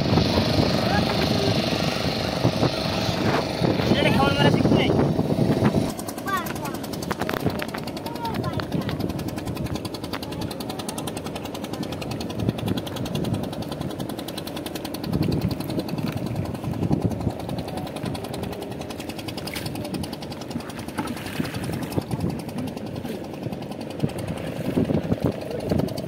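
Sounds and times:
engine running with rapid knock: 0.0 - 26.0
water splashing and dripping: 14.4 - 17.0, 18.6 - 22.2.

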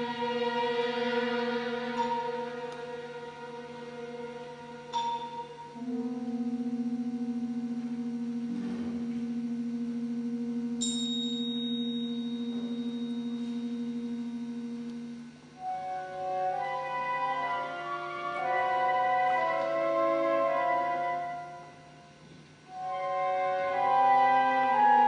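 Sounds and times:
instruments playing sustained notes: 0.0 - 25.0
held low note: 4.9 - 16.6
thin high tone: 10.6 - 15.3.

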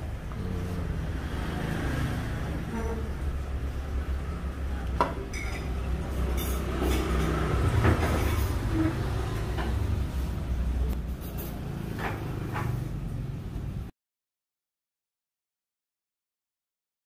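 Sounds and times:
road traffic rumble: 0.0 - 13.9
tableware clinking: 5.0 - 9.0.

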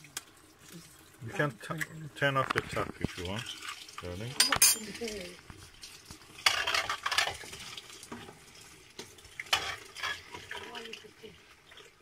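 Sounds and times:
sauce sizzling: 0.0 - 12.0
spatula scraping frying pan: 6.4 - 10.8.

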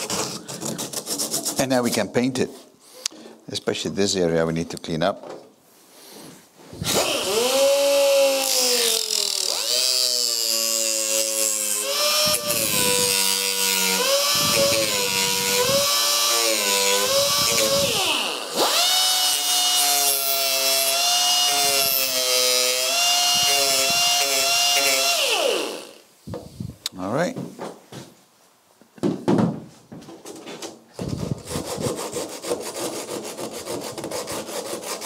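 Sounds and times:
air disc sander whining: 11.8 - 19.5.

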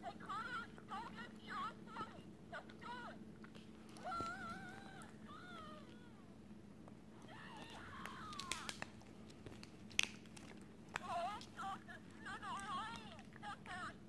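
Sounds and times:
dog whining: 3.8 - 6.3, 7.1 - 9.1.

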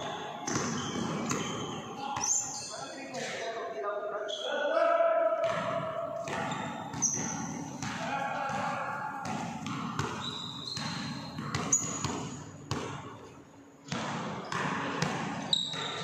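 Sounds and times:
basketball bouncing on wooden floor: 0.4 - 1.8, 5.5 - 13.1, 13.9 - 16.0.

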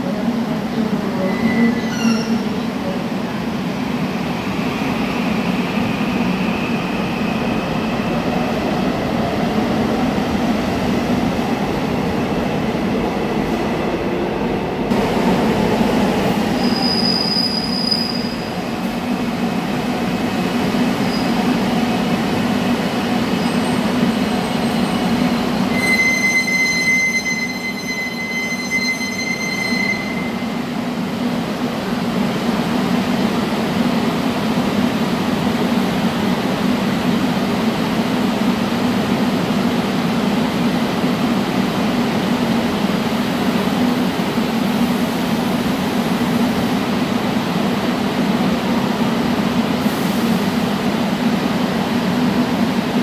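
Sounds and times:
train wheel squeal: 1.2 - 2.6, 16.6 - 18.5, 21.0 - 21.4, 23.4 - 30.6.

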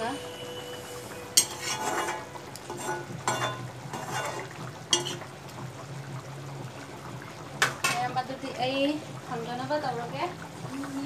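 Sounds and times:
metal spatula scraping pan: 1.4 - 5.2.

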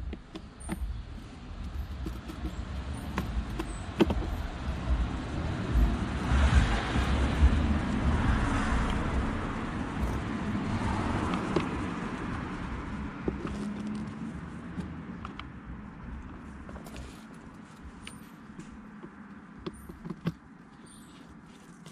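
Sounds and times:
screwdriver clicking on plastic: 1.8 - 4.4
vehicle passing by: 3.7 - 15.1.

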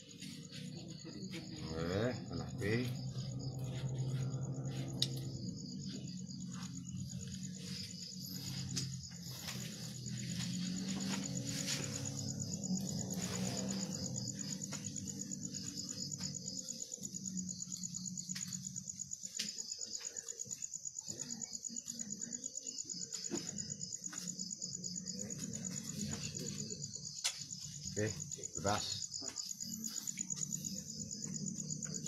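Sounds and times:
low hum: 0.0 - 18.5
crickets chirping: 0.0 - 32.0.

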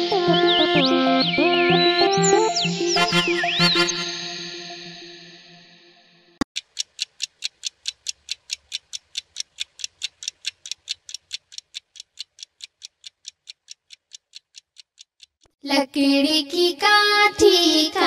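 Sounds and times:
pendulum wall clock ticking: 6.5 - 15.5.

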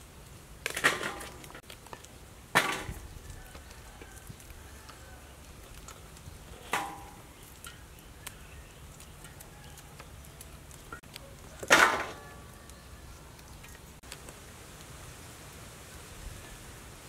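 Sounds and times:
chillies clattering into metal basin: 6.5 - 8.0, 11.6 - 12.4.

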